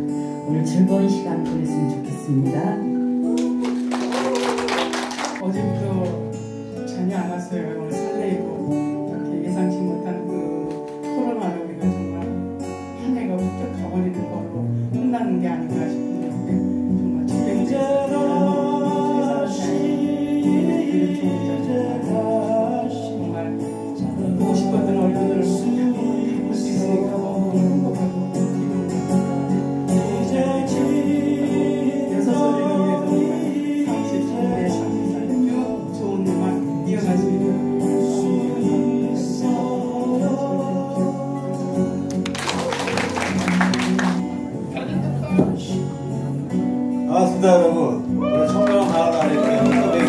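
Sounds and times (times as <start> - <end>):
song with singing: 17.2 - 43.7, 48.2 - 50.0.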